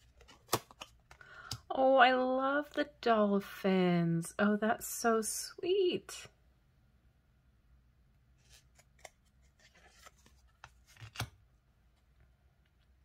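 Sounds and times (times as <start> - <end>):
cards sliding and clicking: 0.0 - 1.6, 8.4 - 11.4.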